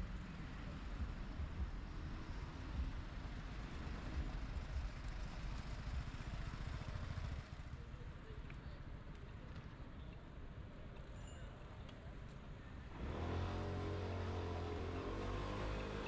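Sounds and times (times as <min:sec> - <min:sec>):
city street traffic: 0:00.0 - 0:16.0
motor vehicle rumbling: 0:12.8 - 0:16.0.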